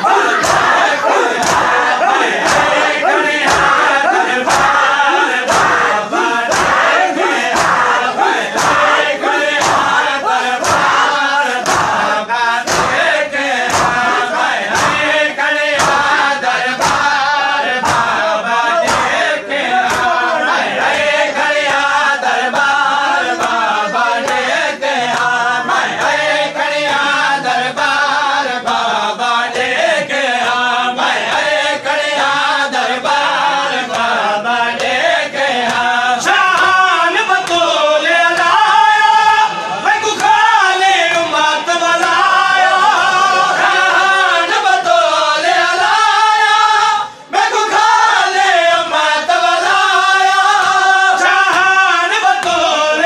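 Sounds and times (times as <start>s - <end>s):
hands slapping chests: 0.0s - 27.2s, 33.2s - 38.7s, 40.0s - 41.4s, 50.4s - 52.7s
men chanting in unison: 0.0s - 53.0s.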